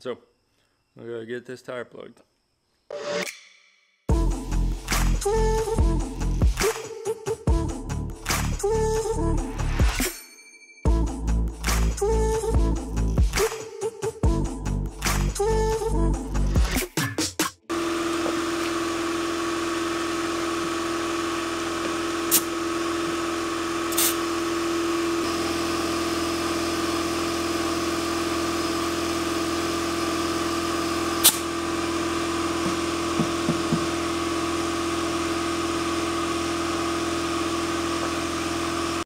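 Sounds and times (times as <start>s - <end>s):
air compressor humming: 17.7s - 39.0s.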